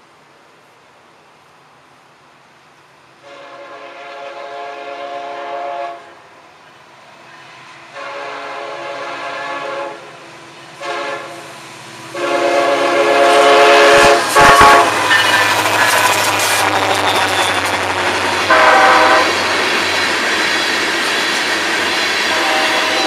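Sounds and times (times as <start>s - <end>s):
locomotive rumble: 2.8s - 23.0s
locomotive air horn blasts: 3.2s - 6.2s, 8.0s - 10.1s, 10.8s - 11.4s, 12.1s - 19.5s, 22.3s - 23.0s.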